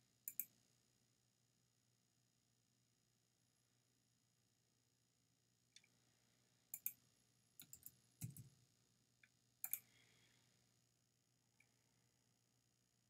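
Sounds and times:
computer mouse clicking: 0.3 - 0.5, 6.7 - 7.0, 7.6 - 8.5, 9.6 - 9.9.

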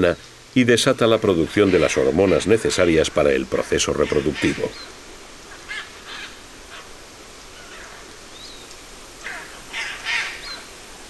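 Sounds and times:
macaws squawking: 1.1 - 8.1, 9.2 - 10.7.

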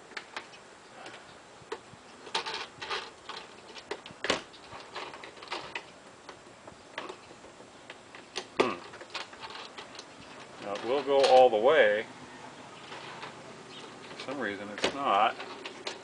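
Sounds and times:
baggage door pushed shut: 14.1 - 16.0.

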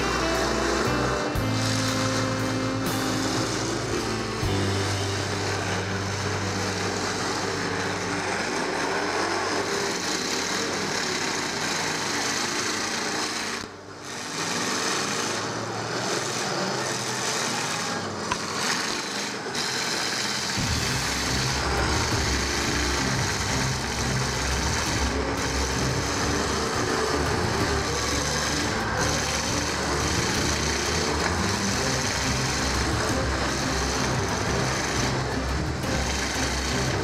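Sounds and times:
deep loud engine note: 0.0 - 11.7, 20.6 - 37.0
car engines revving: 0.0 - 37.0.

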